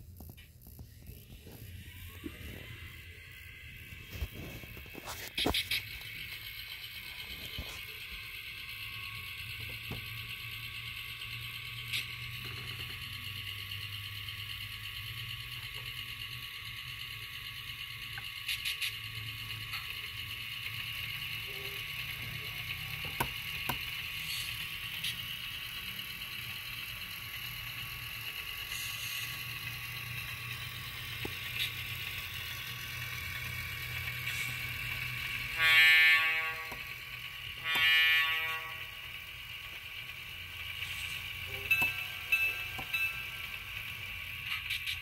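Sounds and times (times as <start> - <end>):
steady electric hum: 0.0 - 45.0.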